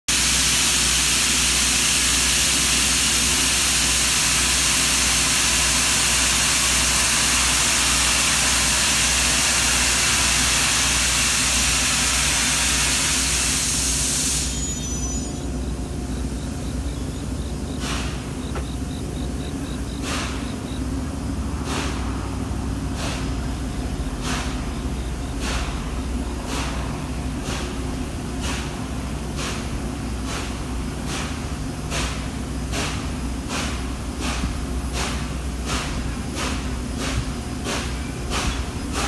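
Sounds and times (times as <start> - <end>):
train hissing: 0.1 - 39.0
low steady hum: 14.4 - 26.4.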